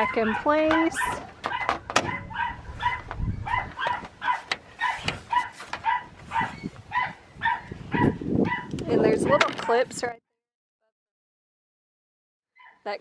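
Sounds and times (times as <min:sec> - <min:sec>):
dog barking: 0:00.0 - 0:09.5, 0:12.6 - 0:12.9.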